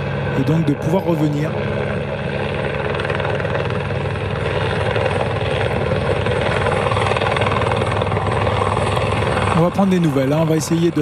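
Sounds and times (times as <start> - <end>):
engine drone with fast pulse: 0.0 - 11.0.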